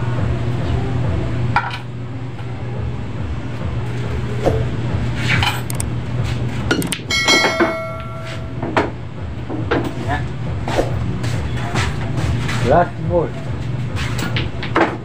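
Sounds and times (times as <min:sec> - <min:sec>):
steady low hum: 0:00.0 - 0:15.0
short knocks and clinks: 0:07.1 - 0:08.4
bell-like chime: 0:07.1 - 0:08.6.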